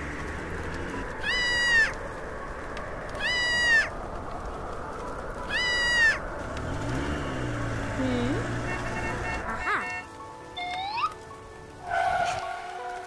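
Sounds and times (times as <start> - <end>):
baby monkey crying: 5.5 - 6.2.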